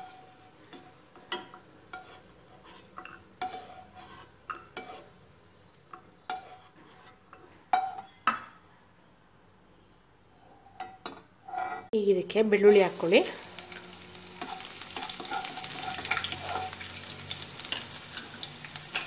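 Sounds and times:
spoon scraping and knocking pan: 0.0 - 5.2, 5.9 - 8.5, 13.7 - 19.0
oil sizzling: 12.6 - 19.0.

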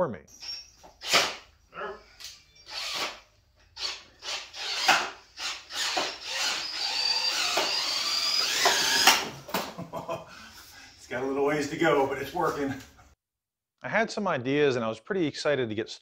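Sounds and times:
cordless drill whining: 2.2 - 9.5.

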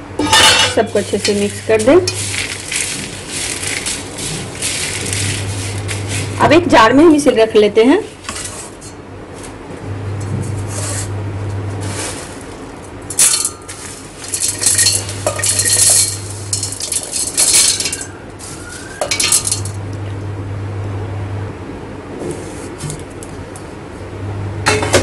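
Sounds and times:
grains rattling in steel jar: 0.8 - 6.6, 11.8 - 19.8.

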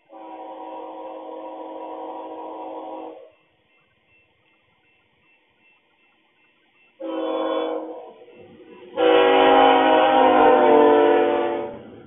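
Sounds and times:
locomotive air horn: 0.0 - 3.3, 7.0 - 8.3, 8.9 - 12.0.

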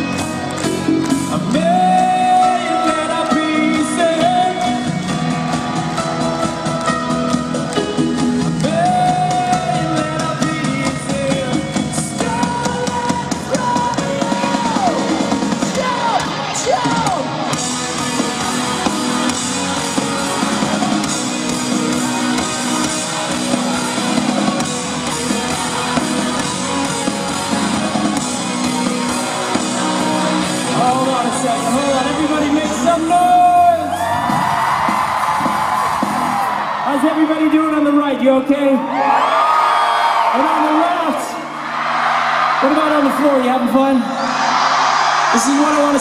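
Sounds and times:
live rock band playing: 0.0 - 36.6
person singing: 0.7 - 5.3, 8.4 - 17.2.

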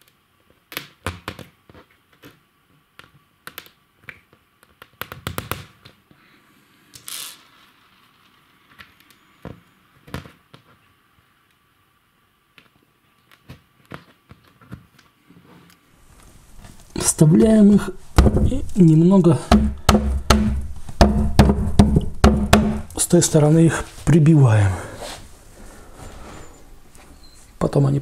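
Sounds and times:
wooden dowels knocking and clicking: 16.6 - 23.4.

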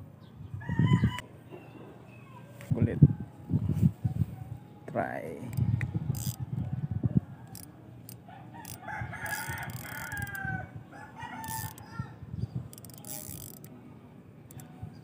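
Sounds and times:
spinning reel clicking: 5.5 - 6.4, 7.5 - 7.7, 8.6 - 10.4, 11.4 - 11.9, 12.7 - 13.7
rooster crowing: 8.3 - 12.2.

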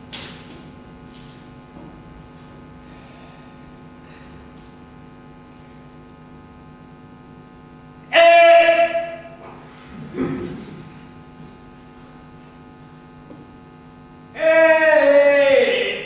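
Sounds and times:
electrical hum: 0.0 - 16.0
loud steady pitched tone: 6.4 - 10.6, 14.1 - 16.0.

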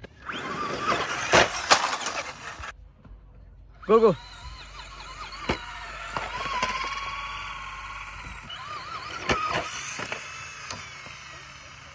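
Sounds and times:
toy car motors whining: 0.0 - 2.8, 3.8 - 11.9
toy cars bumping knocks: 4.4 - 11.6.

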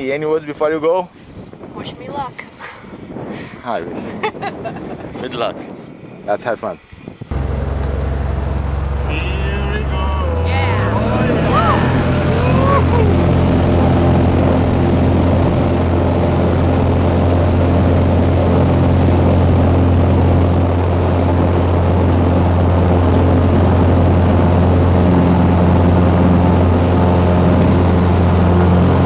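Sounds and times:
propeller plane engine drone: 7.3 - 29.0.

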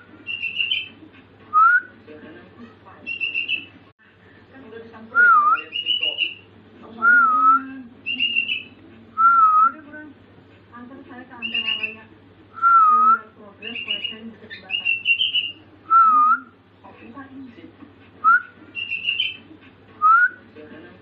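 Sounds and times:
bird whistling song: 0.2 - 0.9, 3.1 - 3.7, 5.2 - 6.4, 7.0 - 9.8, 11.4 - 16.5, 18.2 - 19.4
bird choppy high phrases: 0.2 - 1.0, 3.0 - 3.8, 5.6 - 6.5, 8.0 - 8.8, 11.4 - 12.1, 13.6 - 15.7, 18.6 - 19.5.

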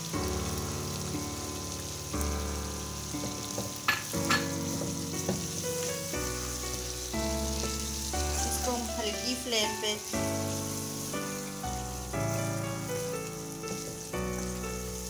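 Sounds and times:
food sizzling in a frying pan: 0.0 - 15.0
soft background music: 0.0 - 15.0
spatula knocking on pan: 3.2 - 5.6
wooden spatula stirring: 4.5 - 6.2, 10.6 - 14.6.

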